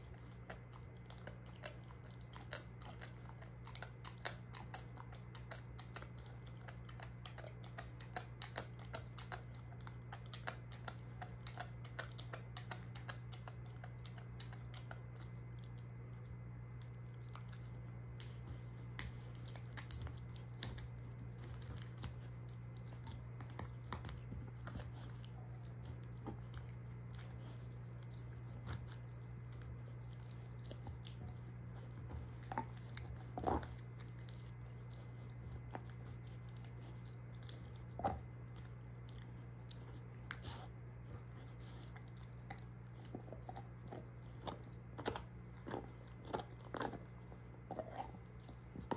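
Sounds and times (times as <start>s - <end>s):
dog teeth crunching bone: 0.0s - 48.9s.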